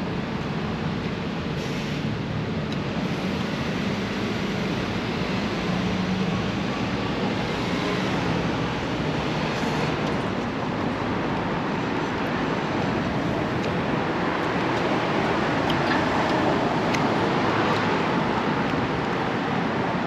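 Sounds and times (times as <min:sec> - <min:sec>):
hiss: 0:01.6 - 0:02.1.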